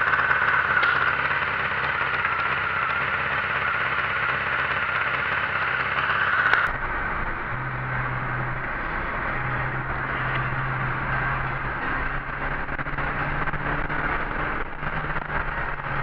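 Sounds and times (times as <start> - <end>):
motorcycle engine idling: 0.0 - 16.0
dull low hum: 6.3 - 16.0.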